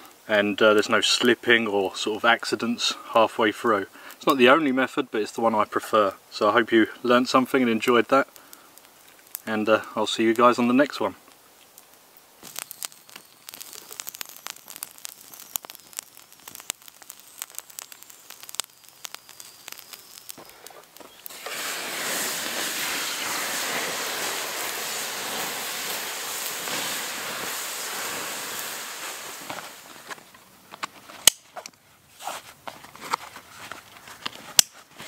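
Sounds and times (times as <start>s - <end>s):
embers hissing: 0.0s - 31.4s
campfire embers crackling and popping: 0.0s - 35.0s
water pouring on embers: 6.0s - 30.4s.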